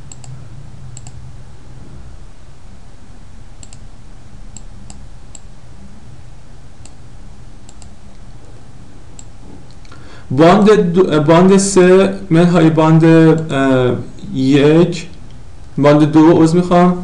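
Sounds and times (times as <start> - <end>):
computer mouse clicking: 0.0 - 0.4, 1.0 - 1.2, 3.6 - 3.8, 7.6 - 8.2
steady low hum: 0.0 - 17.0.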